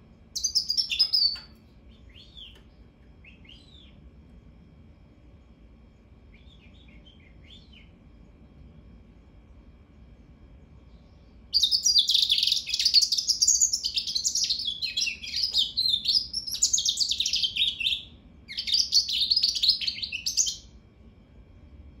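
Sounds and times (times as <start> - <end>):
bird twittering song: 0.4 - 4.0, 6.3 - 8.0, 10.7 - 20.7.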